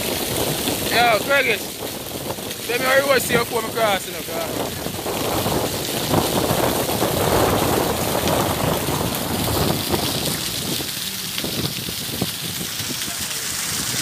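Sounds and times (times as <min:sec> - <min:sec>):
wind buffeting microphone: 0:00.0 - 0:14.0
breaking surf: 0:02.2 - 0:11.6.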